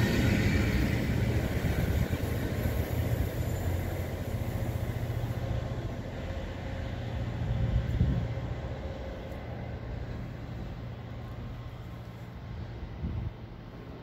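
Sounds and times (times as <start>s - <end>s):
diesel train rumbling: 0.0s - 14.0s.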